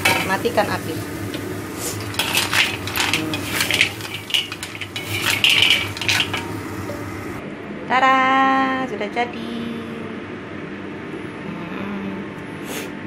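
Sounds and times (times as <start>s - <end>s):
spatula scraping in a wok: 0.0s - 7.4s.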